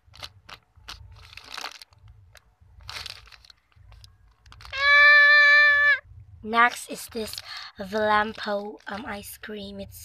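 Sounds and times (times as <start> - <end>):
plastic bag crinkling: 0.0 - 5.8, 6.5 - 9.3
loud steady tone: 4.6 - 6.4.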